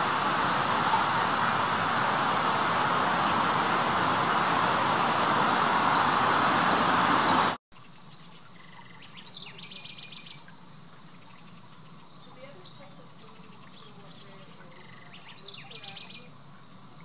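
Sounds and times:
loud steady traffic-like noise: 0.0 - 7.6
small bird chirping: 7.8 - 10.5, 11.1 - 17.0
faint insect buzz: 7.8 - 17.0.

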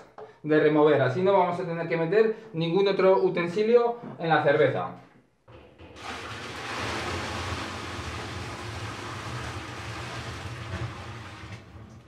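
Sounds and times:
liquid pouring and splashing: 5.5 - 12.0.

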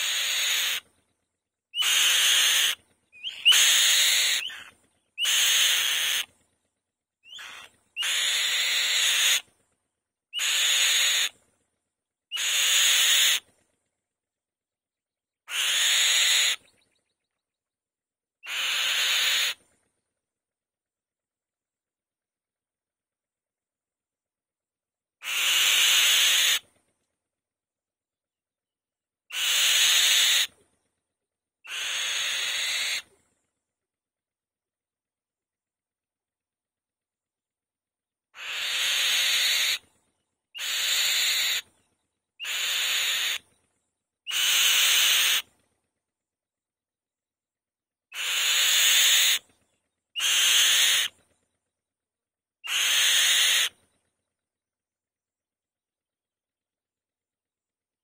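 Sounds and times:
bird harsh rasping screeches: 0.0 - 0.9, 1.8 - 6.3, 7.3 - 9.5, 10.4 - 11.4, 12.3 - 13.5, 15.5 - 16.6, 18.4 - 19.6, 25.2 - 26.7, 29.3 - 30.6, 31.7 - 33.1, 38.4 - 39.8, 40.6 - 41.7, 42.4 - 43.5, 44.3 - 45.5, 48.1 - 49.5, 50.2 - 51.2, 52.6 - 53.8.

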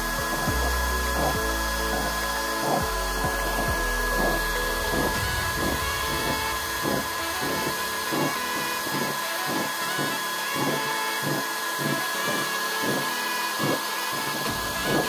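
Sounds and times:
stove burning with rushing hiss: 3.6 - 15.0.

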